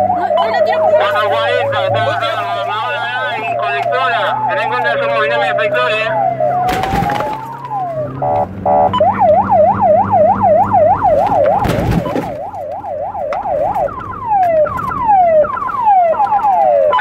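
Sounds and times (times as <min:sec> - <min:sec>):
car engine droning: 0:00.0 - 0:17.0
police siren: 0:00.0 - 0:17.0
car horn blasts: 0:08.2 - 0:08.9.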